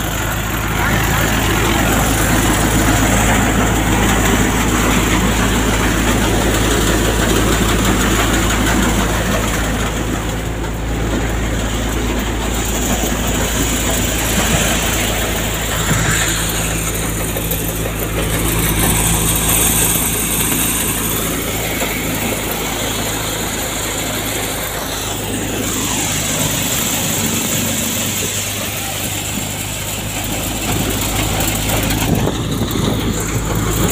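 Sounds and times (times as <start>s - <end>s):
thresher running: 0.0s - 33.9s.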